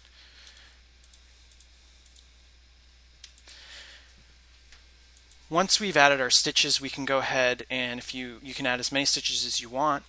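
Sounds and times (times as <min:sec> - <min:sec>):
low electrical hum: 0:00.0 - 0:10.0
computer mouse clicks: 0:00.4 - 0:02.3.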